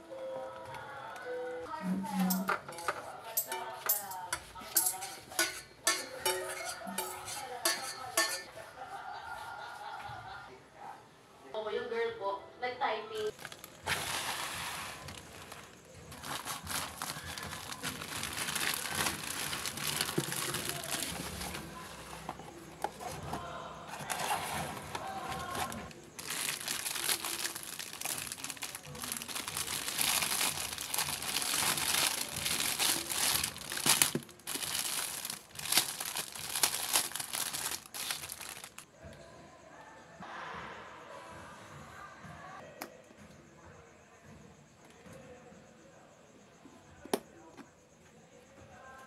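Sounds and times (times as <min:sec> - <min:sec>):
plastic packaging crinkling: 0:13.3 - 0:23.2, 0:23.9 - 0:38.9.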